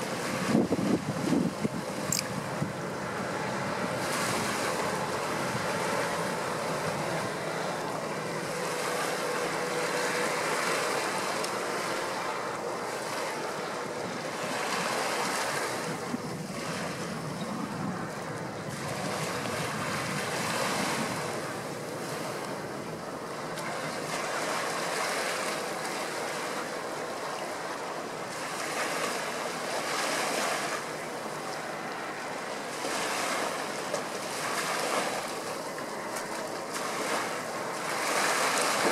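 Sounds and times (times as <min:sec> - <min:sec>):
wind gusting on microphone: 0:00.0 - 0:07.7, 0:14.9 - 0:22.8
choppy river water splashing: 0:00.0 - 0:38.9.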